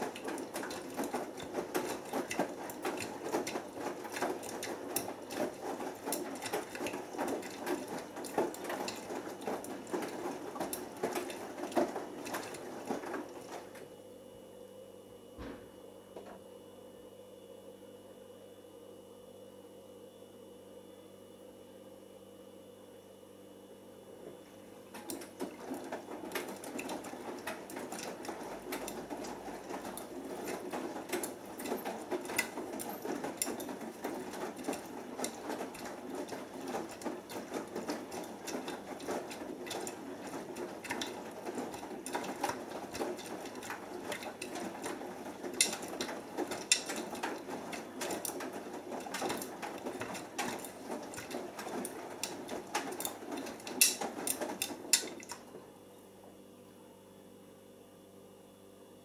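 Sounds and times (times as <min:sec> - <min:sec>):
washing machine drum tumbling: 0:00.0 - 0:13.8, 0:24.9 - 0:55.6.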